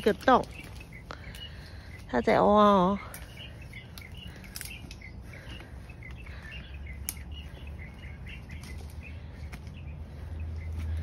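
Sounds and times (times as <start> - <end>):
small birds chirping: 0.0 - 11.0
steady low background hum: 0.0 - 11.0
sharp clicks: 3.9 - 5.1, 7.0 - 7.4.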